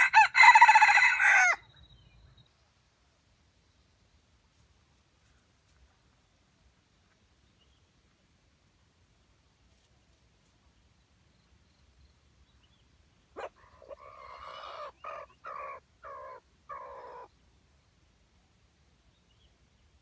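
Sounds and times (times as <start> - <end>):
rooster crowing: 0.0 - 1.6.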